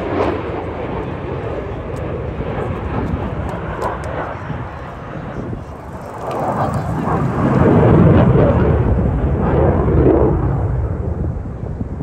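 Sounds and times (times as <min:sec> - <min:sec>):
aircraft engines rumbling: 0:00.0 - 0:12.0.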